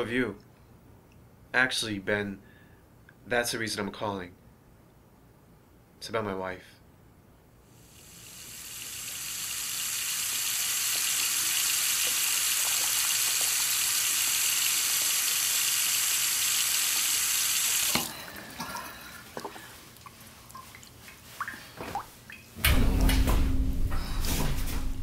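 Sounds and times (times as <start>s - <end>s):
tap water running: 7.8s - 22.6s.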